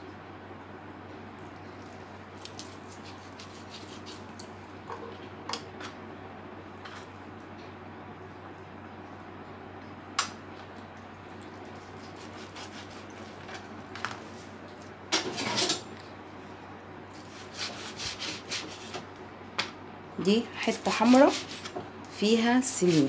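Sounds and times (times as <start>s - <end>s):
faint steady hum: 0.0s - 23.0s
scraping and rubbing meat: 1.6s - 4.8s, 11.4s - 15.8s, 17.1s - 19.1s, 20.6s - 21.8s, 22.4s - 23.0s.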